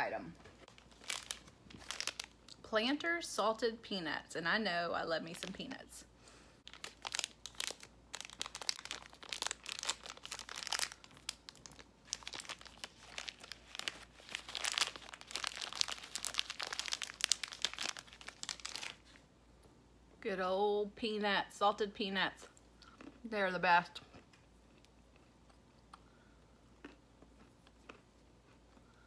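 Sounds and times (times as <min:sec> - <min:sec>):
plastic snack packet crinkling: 0:00.5 - 0:02.6, 0:05.2 - 0:05.7, 0:06.6 - 0:19.2.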